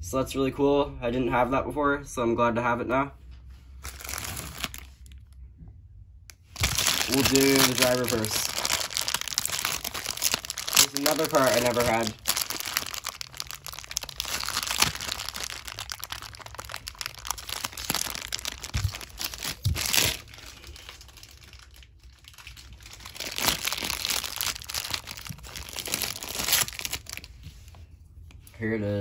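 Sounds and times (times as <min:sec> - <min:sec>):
plastic bag crinkling: 0:03.8 - 0:05.4, 0:06.4 - 0:27.7.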